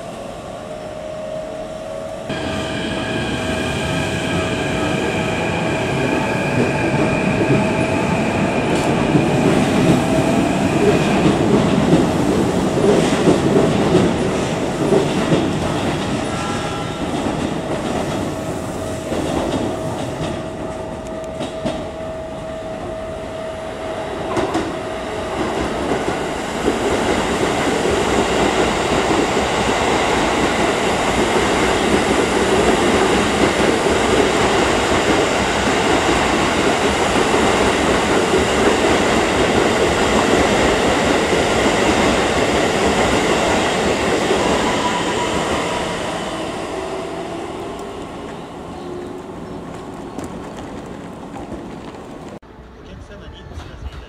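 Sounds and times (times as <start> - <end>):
train wheels on rails: 0.8 - 54.0.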